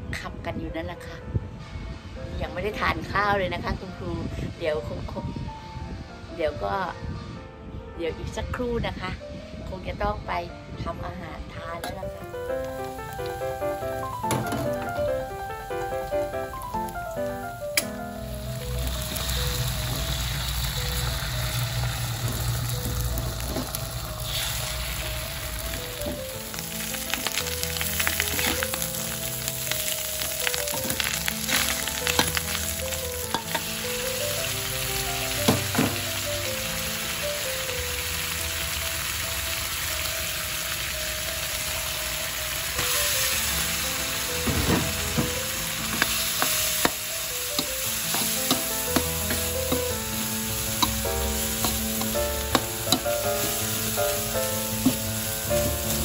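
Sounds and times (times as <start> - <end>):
quiet background melody: 0.0 - 56.0
food sizzling in a wok: 11.9 - 56.0.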